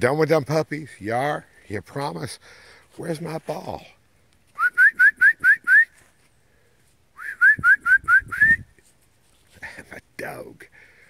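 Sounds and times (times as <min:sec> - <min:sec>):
person whistling rising notes: 0:04.6 - 0:06.0, 0:07.2 - 0:08.7.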